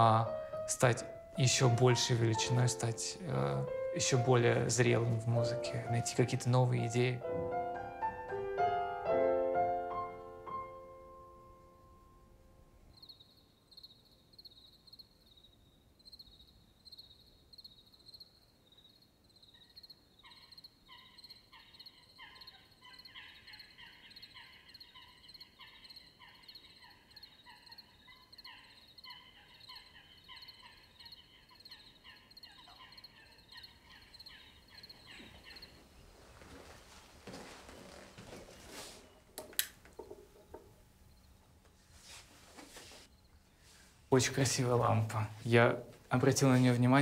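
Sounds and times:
crickets chirping: 12.7s - 39.3s, 39.9s - 41.6s, 43.1s - 45.1s
lower rhythmic chirping call: 12.9s - 35.8s
rustling: 35.0s - 44.1s.

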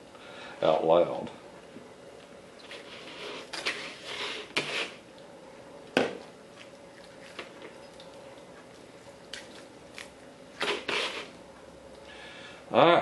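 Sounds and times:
knife scraping meat off bone: 2.8s - 5.0s, 10.6s - 11.4s.

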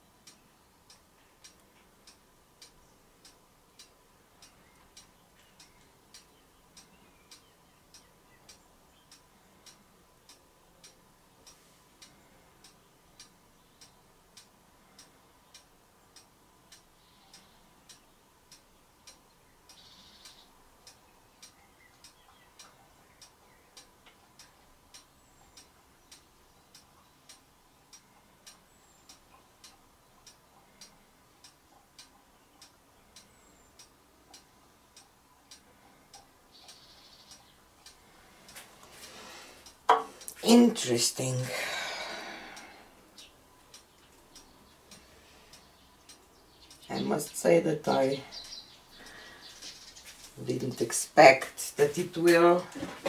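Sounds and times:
faint steady ticking: 0.0s - 53.0s.

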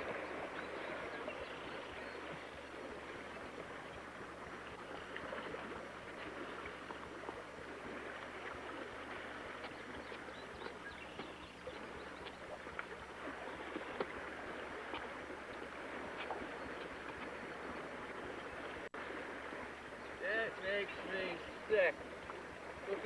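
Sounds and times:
creek rushing: 0.0s - 23.0s.

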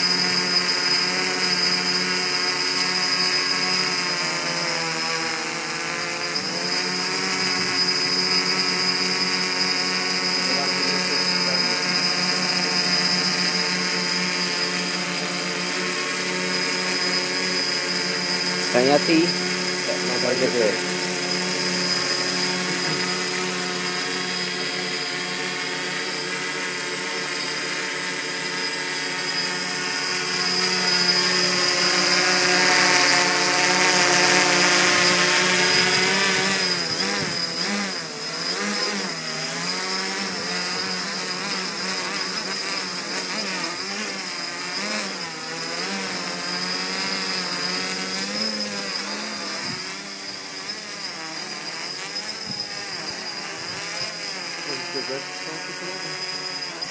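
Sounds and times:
quadcopter propellers buzzing: 0.0s - 56.9s.

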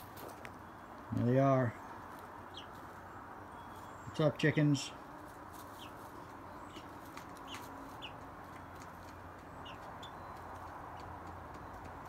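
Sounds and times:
chicks peeping: 2.4s - 3.0s, 3.7s - 12.0s.

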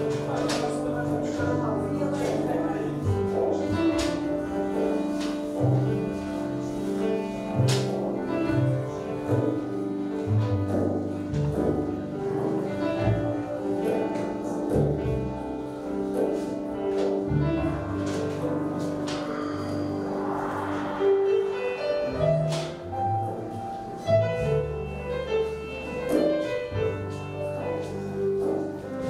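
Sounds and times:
double bass: 0.0s - 29.0s
grand piano: 0.0s - 29.0s.

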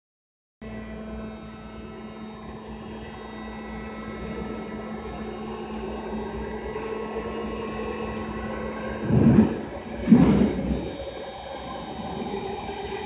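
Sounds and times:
train motors humming and whining: 0.6s - 13.0s
low rumble of running gear: 9.0s - 11.0s.

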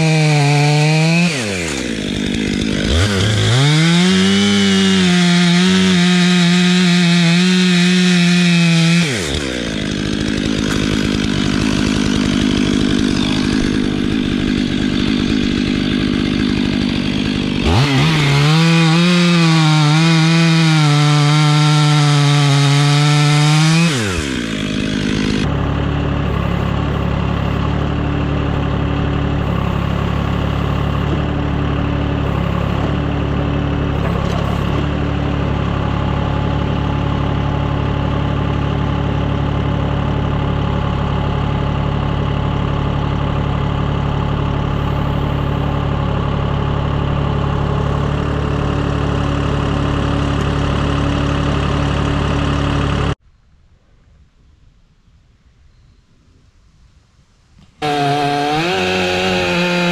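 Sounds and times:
chainsaw at full throttle: 0.0s - 53.2s, 57.8s - 59.9s
engine idling: 1.3s - 3.8s, 9.1s - 18.8s, 24.0s - 53.2s.

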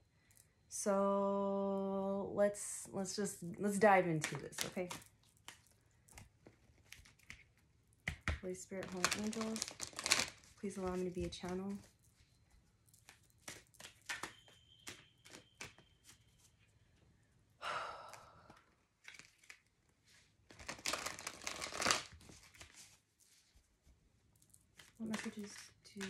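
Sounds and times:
cards clicking and tapping: 4.2s - 11.9s, 13.0s - 16.2s, 24.7s - 26.0s
cards shuffling flutter: 13.0s - 16.2s, 18.5s - 19.6s.

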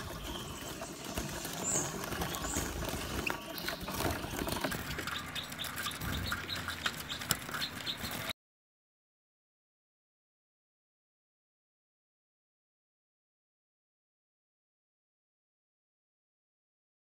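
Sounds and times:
birds fluttering wings: 0.0s - 8.3s
birds chirping: 0.0s - 8.4s.

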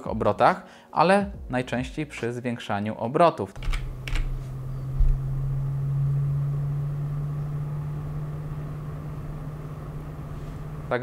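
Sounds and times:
fan humming: 3.6s - 11.0s
short low thump: 4.9s - 5.4s.

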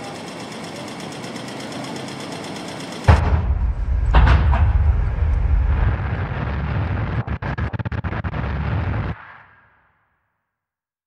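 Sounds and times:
rhythmic machine-like noise texture: 0.0s - 9.2s
heavy boom with deep rumble: 3.1s - 9.6s.

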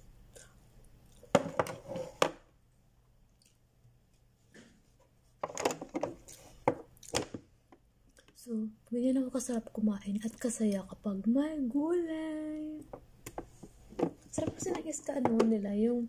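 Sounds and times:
lunch box knocking and rustling: 1.3s - 2.4s, 5.4s - 7.8s, 13.0s - 15.6s.

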